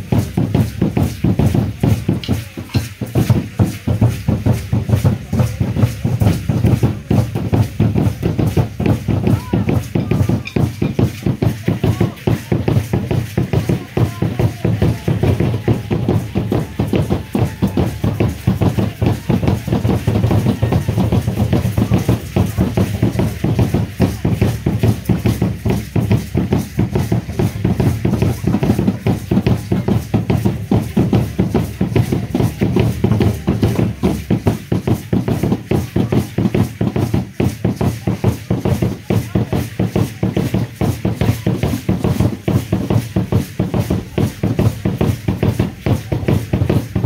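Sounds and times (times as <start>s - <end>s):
drum beaten in fast rhythm: 0.0s - 47.0s.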